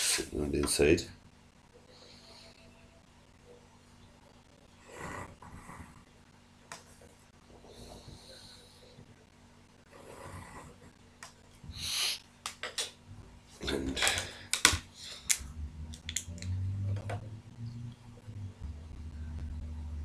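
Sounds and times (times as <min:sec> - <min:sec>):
pens clicking on desk: 0:14.0 - 0:17.2.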